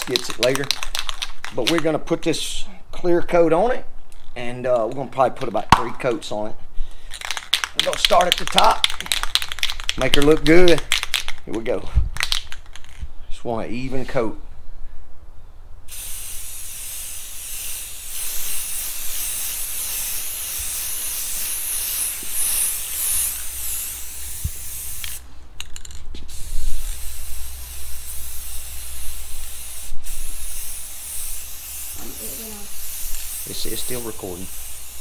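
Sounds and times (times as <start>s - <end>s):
aerosol can spraying: 15.9s - 25.2s, 26.2s - 35.0s.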